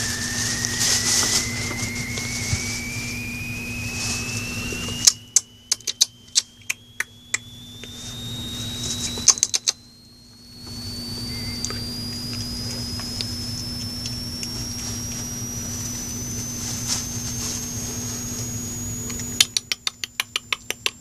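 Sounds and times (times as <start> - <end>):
foil streamers rustling: 0.0 - 5.2, 14.5 - 18.1
thin whistle-like tone: 0.0 - 20.9
low steady hum: 0.0 - 21.0
sharp clicks: 5.0 - 8.0, 9.2 - 9.9, 19.0 - 21.0.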